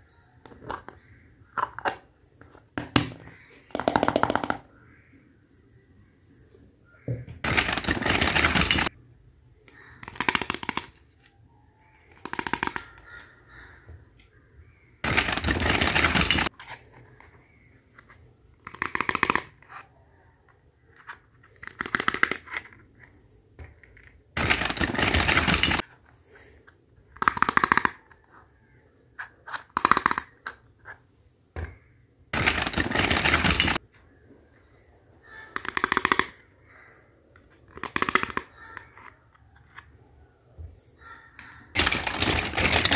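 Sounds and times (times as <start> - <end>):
plastic toy dishes clattering: 7.4 - 9.0, 15.0 - 16.5, 23.6 - 25.8, 32.4 - 33.8, 41.8 - 42.9.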